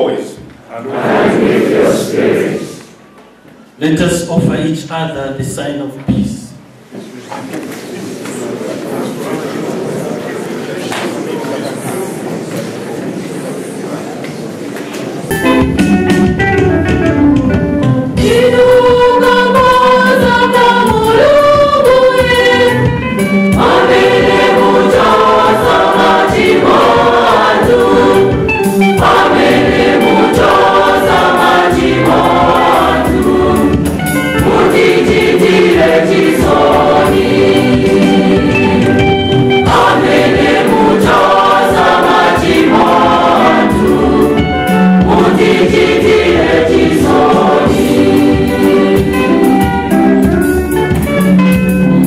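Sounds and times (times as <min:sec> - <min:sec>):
choir singing a hymn: 0:00.0 - 0:03.1, 0:18.0 - 0:50.4
electric guitar: 0:15.3 - 0:18.3, 0:49.0 - 0:52.0.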